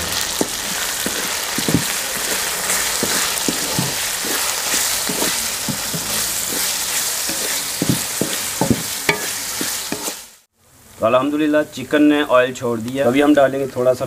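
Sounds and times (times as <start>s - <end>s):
wooden spatula scraping pan: 0.0s - 10.4s
meat sizzling in oil: 0.0s - 10.5s.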